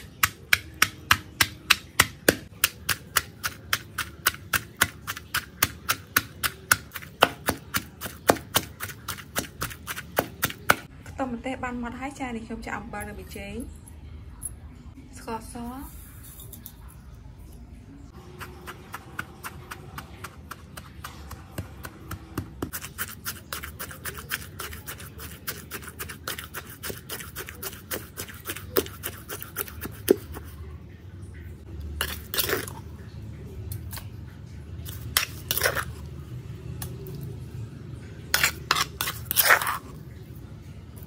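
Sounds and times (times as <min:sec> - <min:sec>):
metal spoon scraping mortar: 0:00.0 - 0:10.8, 0:22.6 - 0:30.6, 0:32.0 - 0:32.8, 0:34.8 - 0:36.1, 0:38.2 - 0:40.0
pestle pounding in stone mortar: 0:00.0 - 0:10.9, 0:18.3 - 0:30.4.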